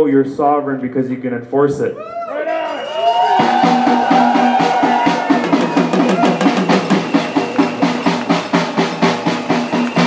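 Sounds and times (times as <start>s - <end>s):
drums beaten in fast rhythm: 2.7s - 10.0s.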